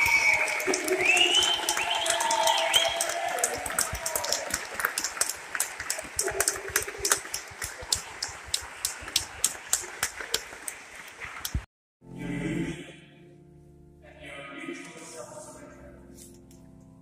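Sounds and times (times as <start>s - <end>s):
congregation clapping: 0.0s - 11.7s
music with sustained notes: 12.0s - 17.0s.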